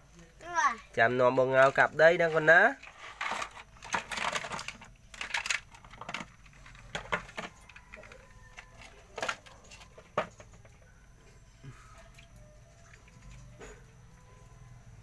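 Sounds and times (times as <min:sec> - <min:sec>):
plastic toy trucks clattering: 0:02.2 - 0:10.8.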